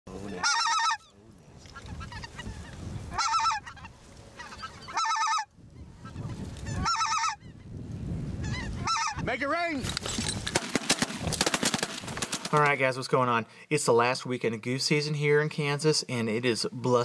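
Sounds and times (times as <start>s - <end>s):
faint flock calls: 0.1s - 7.7s, 8.4s - 9.4s
geese calling: 0.1s - 7.8s, 8.4s - 9.4s
wind rumble: 1.2s - 12.6s.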